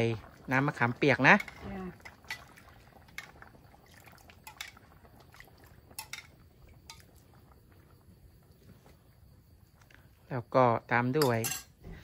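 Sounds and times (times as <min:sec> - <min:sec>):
liquid pouring into pan: 0:00.0 - 0:08.2
utensil clinking on pot and dishes: 0:01.3 - 0:01.6, 0:04.4 - 0:04.8, 0:05.9 - 0:07.1, 0:11.2 - 0:11.8.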